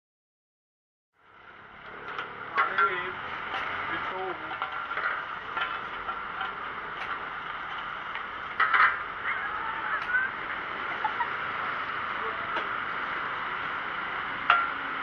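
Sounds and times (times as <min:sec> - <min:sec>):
street noise: 0:01.2 - 0:15.0.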